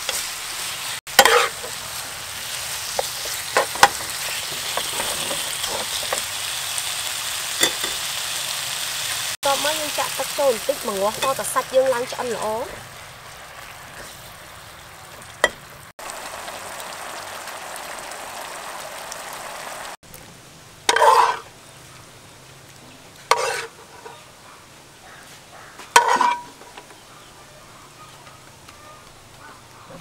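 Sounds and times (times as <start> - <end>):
meat sizzling in a pan: 0.0 - 20.0, 20.9 - 21.5
spoon scraping ceramic bowl: 1.2 - 1.6, 23.3 - 24.2, 26.0 - 26.5.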